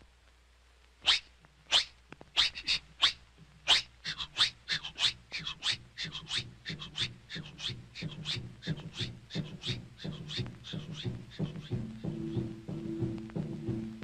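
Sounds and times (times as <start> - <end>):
cartoon animal sniffing: 1.8 - 11.7.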